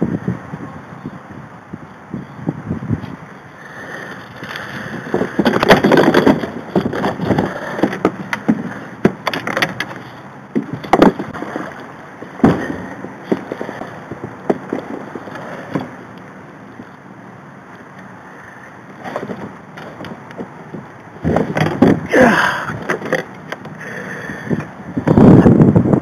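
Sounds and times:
knocks and clicks in plastic kayak: 0:04.5 - 0:15.1, 0:18.9 - 0:22.1, 0:22.8 - 0:23.8.

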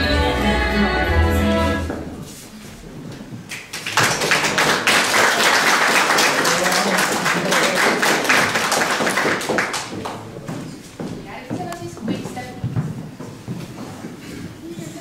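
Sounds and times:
audience applauding: 0:03.5 - 0:10.3.

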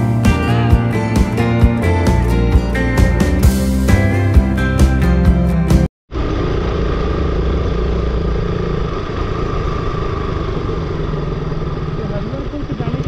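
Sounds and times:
background music: 0:00.0 - 0:05.9
road noise: 0:06.1 - 0:13.0
motorcycle engine running: 0:06.2 - 0:13.0.

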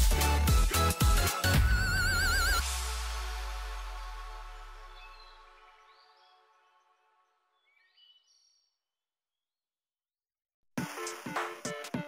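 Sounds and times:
electronic dance music: 0:00.0 - 0:04.8.

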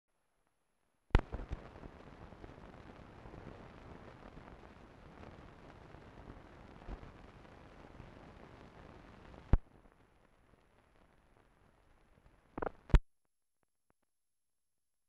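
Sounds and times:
film soundtrack hiss and crackle: 0:00.1 - 0:13.0
small clicks and pop: 0:01.1 - 0:01.8, 0:09.4 - 0:09.7, 0:12.5 - 0:13.0.

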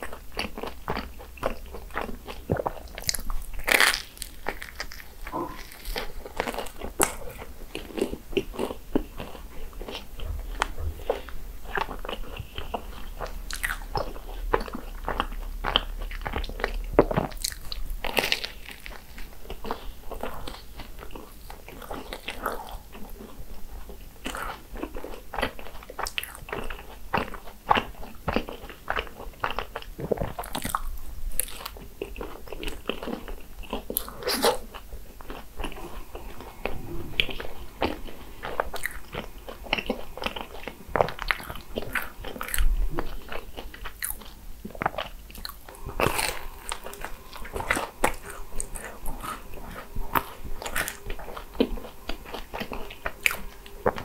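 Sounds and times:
crisp crunching and chewing: 0:00.0 - 0:54.0.

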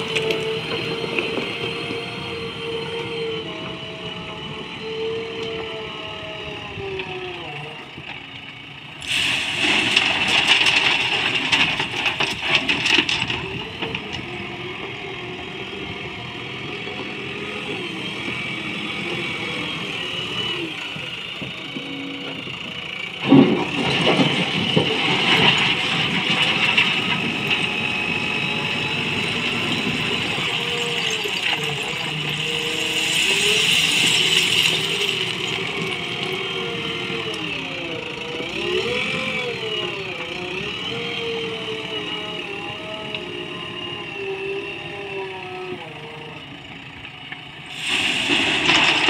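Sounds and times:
diesel engine revving: 0:00.0 - 0:07.9, 0:08.9 - 0:49.0
stones clattering into truck: 0:09.1 - 0:14.1, 0:29.8 - 0:36.5, 0:47.9 - 0:49.0
bucket scraping stones: 0:29.9 - 0:36.4.

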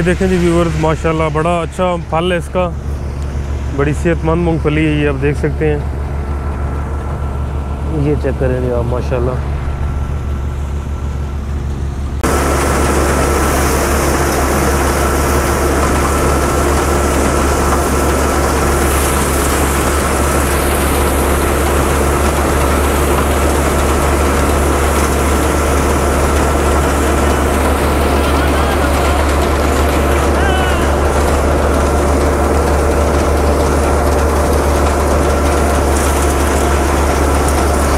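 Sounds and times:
thin steady whine: 0:00.0 - 0:06.4
deep engine hum: 0:00.0 - 0:37.9
peanut thresher running: 0:00.0 - 0:37.9.

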